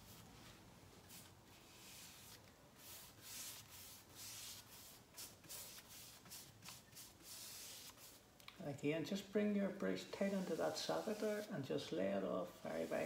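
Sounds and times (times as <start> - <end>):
paintbrush soft swishes: 9.6 - 13.0.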